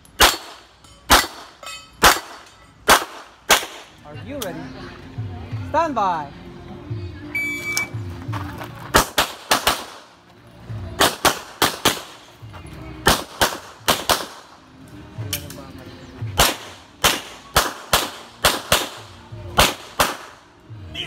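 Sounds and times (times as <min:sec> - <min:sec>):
gunshots in quick pairs: 0:00.2 - 0:04.0, 0:08.9 - 0:10.1, 0:11.0 - 0:12.3, 0:13.0 - 0:14.5, 0:16.3 - 0:20.4.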